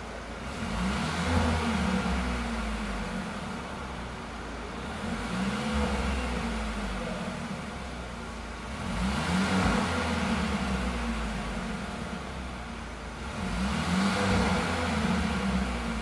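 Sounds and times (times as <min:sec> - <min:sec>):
car engine idling: 0:00.0 - 0:16.0
car engine revving: 0:00.0 - 0:16.0.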